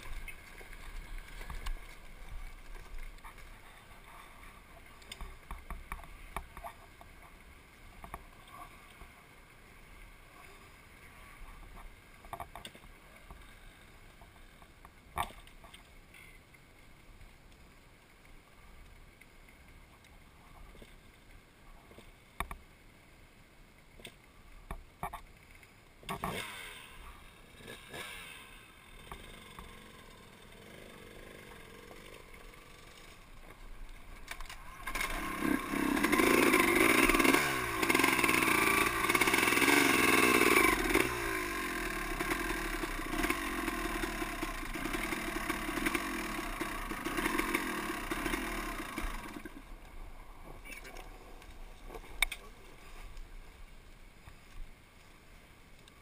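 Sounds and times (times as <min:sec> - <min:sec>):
dirt bike engine revving: 0:26.2 - 0:33.3, 0:34.6 - 0:49.7.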